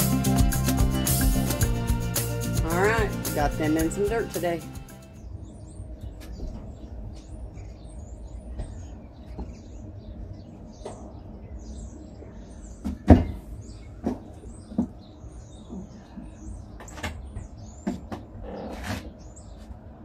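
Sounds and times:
small birds chirping: 2.6s - 20.0s.

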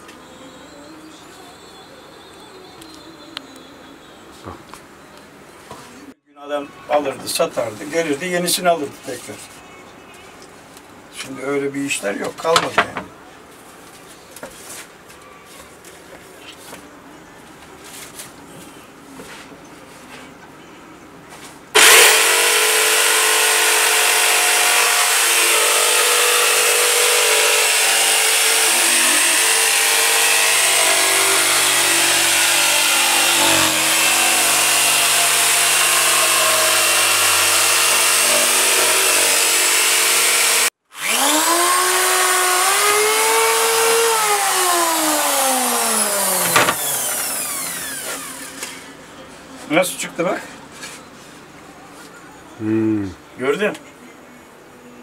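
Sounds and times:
electric jigsaw cutting wood: 21.8s - 48.7s.

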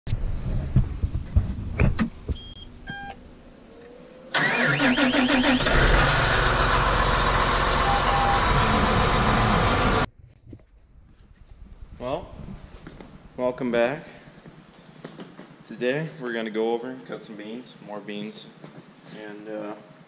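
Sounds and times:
engine cranking and running: 4.3s - 10.1s
short electronic beeps: 7.8s - 8.6s.

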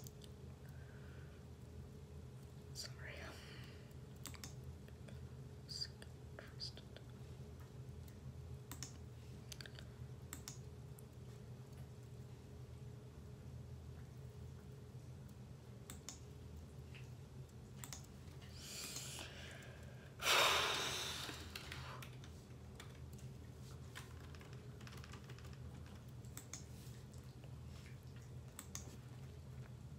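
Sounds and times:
low steady hum: 0.0s - 29.9s
keyboard typing clicks: 8.0s - 9.0s, 10.3s - 11.1s, 15.8s - 16.3s, 17.8s - 18.2s, 24.1s - 26.7s, 28.5s - 28.9s.

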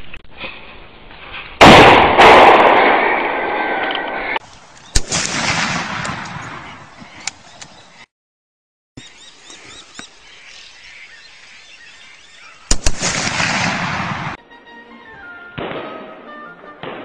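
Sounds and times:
gunshot cracks: 1.6s - 3.8s, 5.0s - 6.8s, 12.7s - 14.4s, 15.6s - 16.1s, 16.8s - 17.0s
gunshot reverberation: 1.6s - 3.9s, 4.9s - 7.4s, 12.7s - 14.4s, 15.6s - 17.0s
background music: 14.4s - 17.0s.

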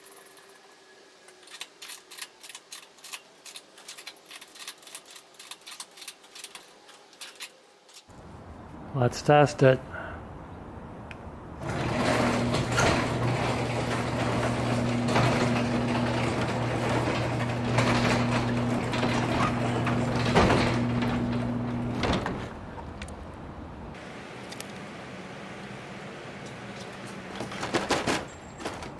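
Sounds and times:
garage door opener motor humming: 11.6s - 22.8s, 23.9s - 28.5s.

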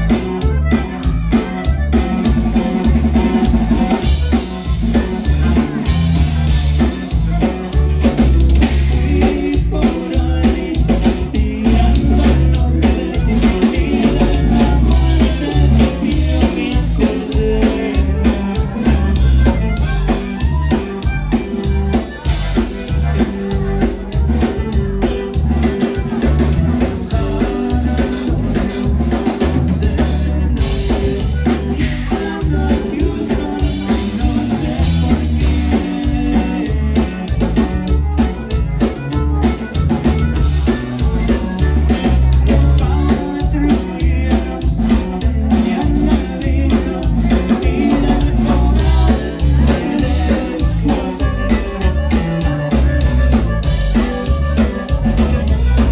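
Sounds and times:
drum kit and bass beat: 0.0s - 55.9s
live band playing dance tune: 0.0s - 55.9s.

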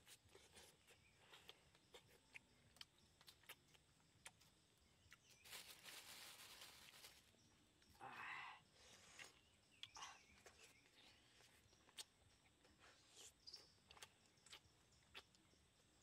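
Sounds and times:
person eating clicks and smacks: 1.4s - 4.5s, 11.8s - 12.2s, 13.5s - 15.4s
rustling: 5.3s - 7.4s.

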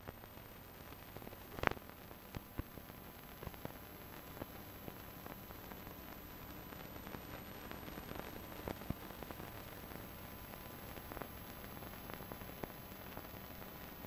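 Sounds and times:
film soundtrack surface hiss: 0.0s - 14.0s
sharp crackle: 0.0s - 14.0s
clicks and pops: 1.5s - 2.7s.

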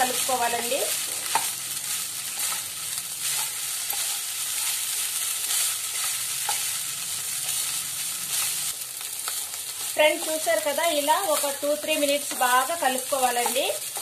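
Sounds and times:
rice sizzling in a pan: 0.0s - 14.0s
wooden spatula scraping a pan: 0.4s - 8.5s.

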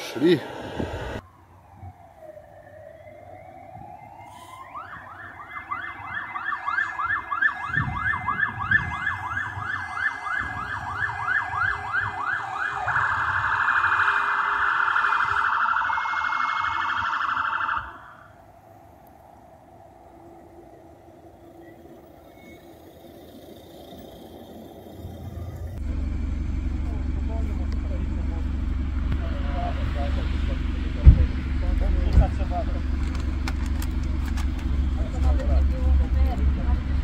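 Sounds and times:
electronic siren wailing and yelping: 1.4s - 18.4s.

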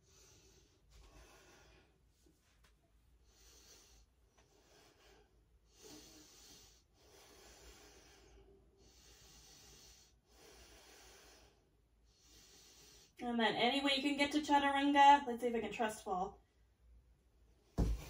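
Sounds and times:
woman breathing softly: 0.0s - 2.3s, 3.2s - 13.2s.

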